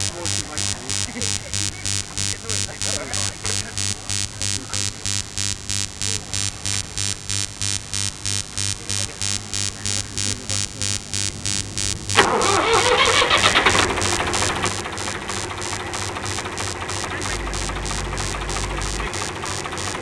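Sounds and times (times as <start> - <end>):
tractor engine cranking and starting: 12.2 - 20.0.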